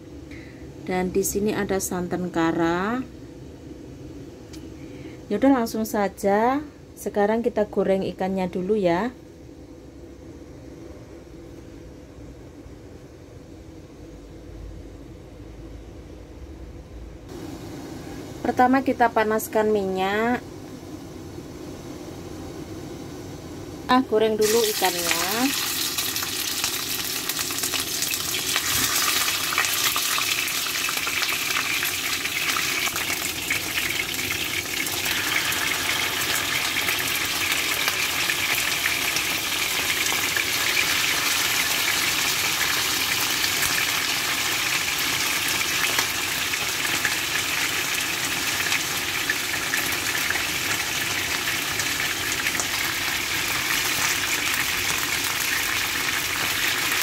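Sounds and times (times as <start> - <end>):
fish sizzling in hot oil: 24.4 - 57.0.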